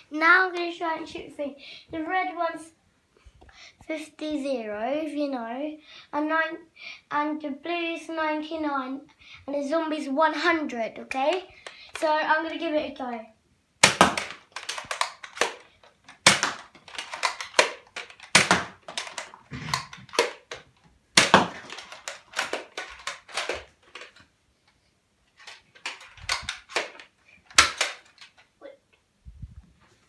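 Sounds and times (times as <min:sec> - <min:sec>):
foam dart blaster clacks: 0:13.8 - 0:20.6, 0:21.2 - 0:24.1, 0:25.8 - 0:28.3.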